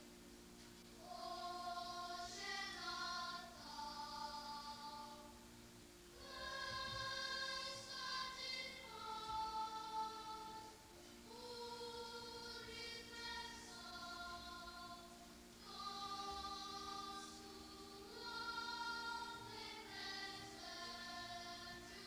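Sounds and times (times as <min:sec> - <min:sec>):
slow choral singing: 0:00.9 - 0:22.0.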